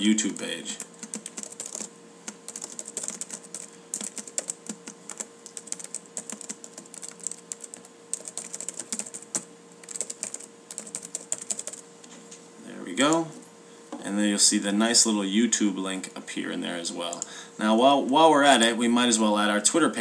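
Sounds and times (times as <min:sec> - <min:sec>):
typing on computer keyboard: 0:00.3 - 0:11.8.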